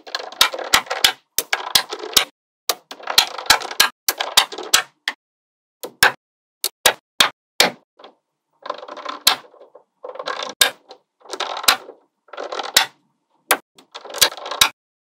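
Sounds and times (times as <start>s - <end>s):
magnetic balls clicking and rattling: 8.0s - 14.8s.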